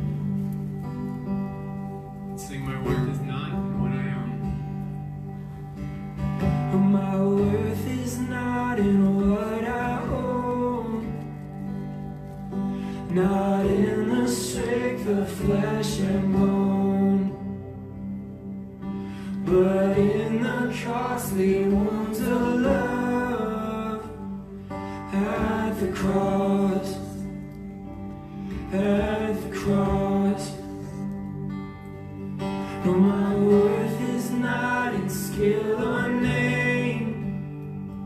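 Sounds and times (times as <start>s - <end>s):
strummed acoustic guitar: 0.0s - 38.0s
man and woman singing: 13.1s - 17.5s, 19.5s - 24.4s, 25.0s - 27.4s, 28.7s - 31.1s, 32.7s - 37.4s.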